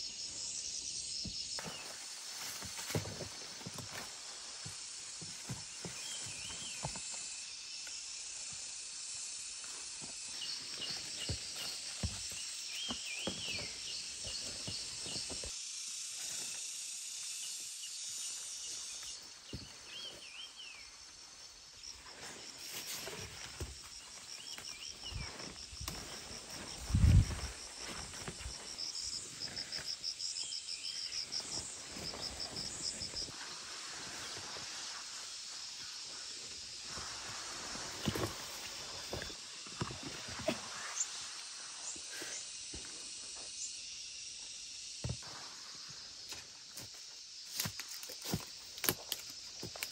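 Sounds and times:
insects calling: 0.0 - 49.9
footsteps through plants: 1.6 - 7.1, 22.0 - 30.1.

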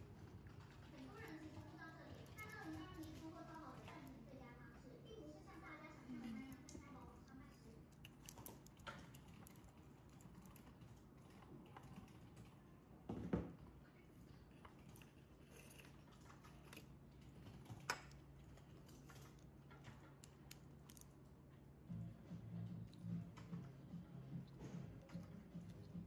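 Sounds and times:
metal parts clicking and tapping: 7.9 - 12.5, 14.9 - 21.2.

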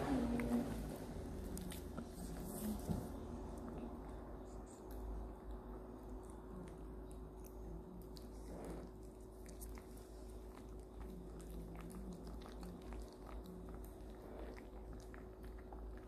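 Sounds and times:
dog gnawing chew treat: 3.6 - 16.0.

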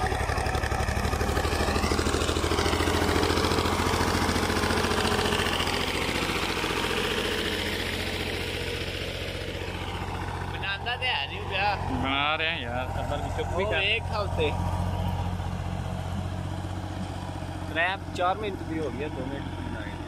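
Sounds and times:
tractor diesel engine under load: 0.0 - 20.0.

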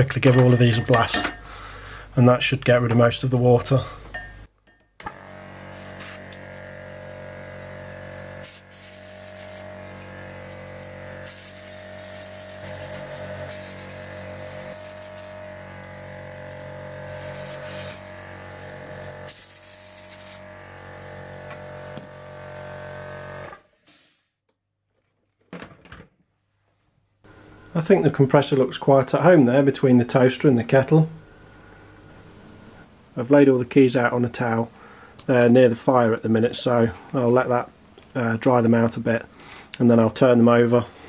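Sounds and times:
air compressor humming: 5.0 - 24.2
air blow gun hissing blasts: 5.1 - 20.6, 23.5 - 24.4.

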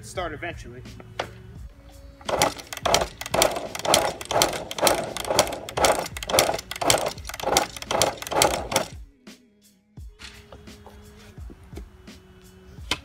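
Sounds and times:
motorcycle engine kicked over: 2.2 - 9.0.

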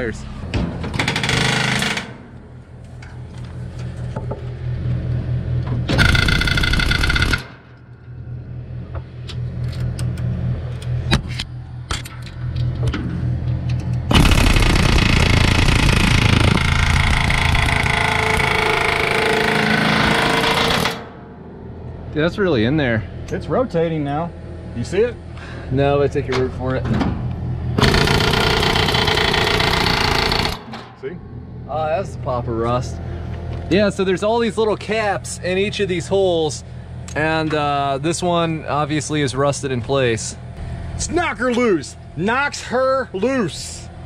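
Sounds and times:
air hammer rattling on metal: 6.0 - 7.6, 14.1 - 21.1, 27.8 - 30.8.

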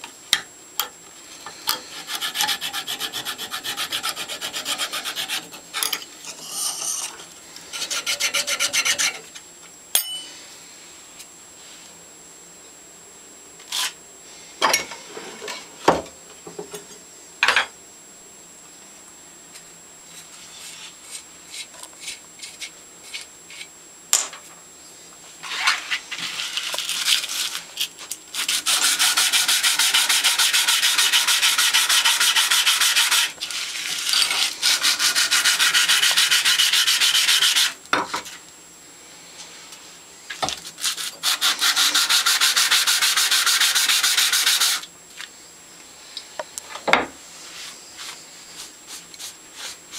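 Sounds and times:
metal rasping on abrasive paper: 1.8 - 5.6, 7.7 - 9.3, 28.3 - 37.8, 40.7 - 44.8, 48.0 - 49.8
clinks of steel parts handled: 10.0 - 10.3.

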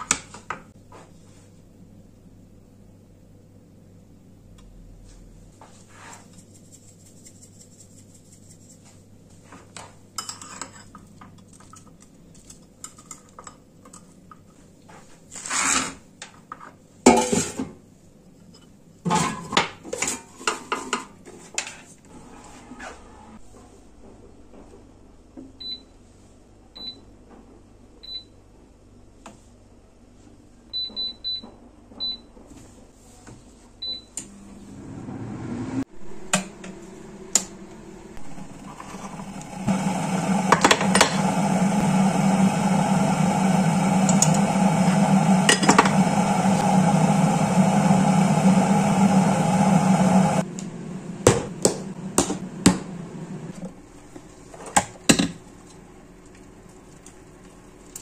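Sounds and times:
electric kettle boiling: 36.3 - 53.9.

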